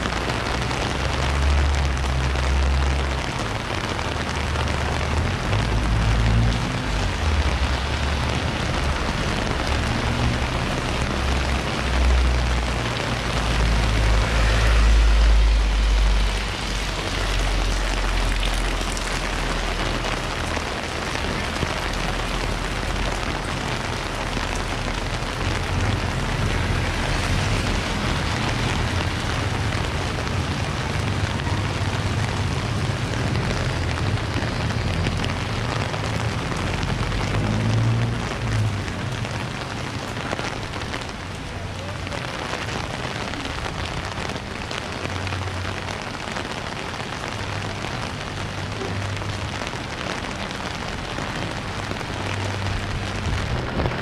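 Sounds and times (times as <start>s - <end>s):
rain on wet street: 0.0s - 54.0s
low rumble: 13.2s - 20.6s.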